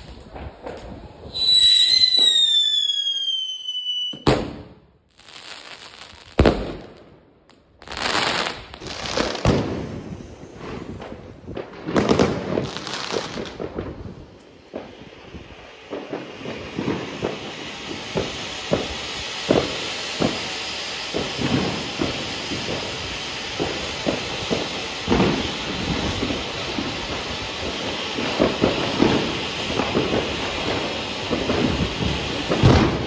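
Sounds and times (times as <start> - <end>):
firework bangs: 0.0 - 33.0
firework whistle falling in pitch: 1.3 - 4.5.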